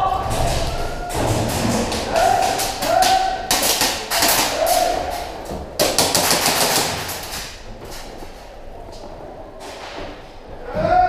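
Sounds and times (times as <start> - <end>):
airsoft guns firing: 1.1 - 7.6.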